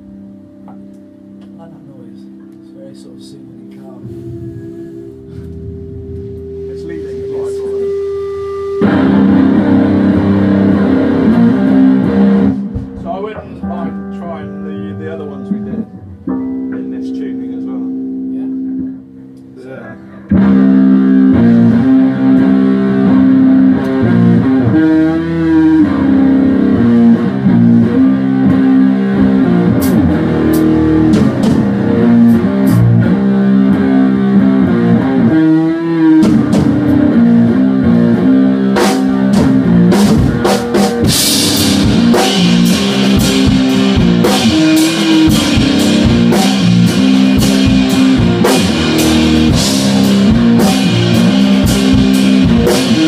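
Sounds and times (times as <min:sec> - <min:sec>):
drum kit: 0:00.0 - 0:53.0
electric guitar riff: 0:00.0 - 0:53.0
cymbals: 0:02.9 - 0:14.2.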